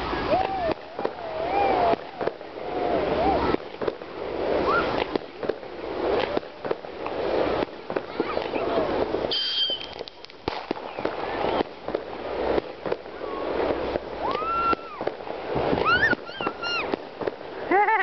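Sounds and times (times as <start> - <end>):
firework whistle: 0.0 - 5.6, 9.2 - 11.9, 12.6 - 17.3
fireworks bangs and crackling: 0.0 - 18.0.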